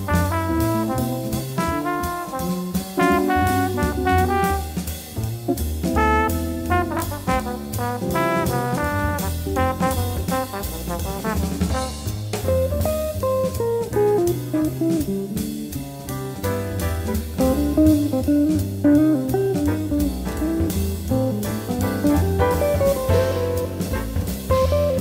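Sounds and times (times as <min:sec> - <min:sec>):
bass: 0:00.0 - 0:25.0
drum kit: 0:00.0 - 0:25.0
jazz guitar melody: 0:00.0 - 0:25.0
trombone section chord: 0:00.1 - 0:04.9, 0:05.9 - 0:12.1.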